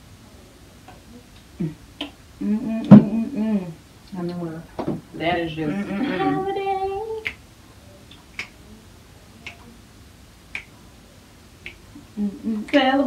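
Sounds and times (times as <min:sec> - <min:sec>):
person humming: 0:01.6 - 0:01.8, 0:02.4 - 0:03.8, 0:05.6 - 0:07.3, 0:12.0 - 0:13.0
fingers snapping: 0:08.1 - 0:08.6, 0:09.4 - 0:09.7, 0:10.5 - 0:10.7, 0:11.6 - 0:11.8.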